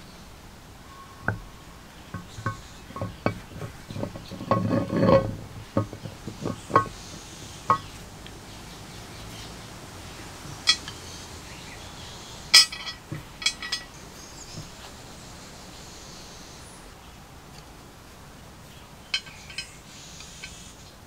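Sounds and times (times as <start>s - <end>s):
metal pins clinking into metal housing: 2.1s - 7.0s, 7.6s - 8.0s, 10.5s - 11.0s, 12.5s - 14.0s, 19.1s - 20.6s.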